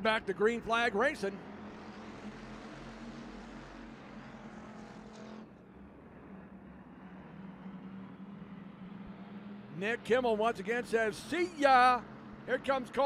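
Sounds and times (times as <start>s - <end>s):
race car engines droning: 0.0s - 13.0s.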